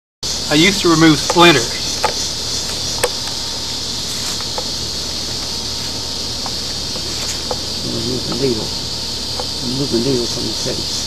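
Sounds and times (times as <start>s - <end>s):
insect chorus: 0.2s - 11.0s
faint ticks: 9.3s - 9.6s.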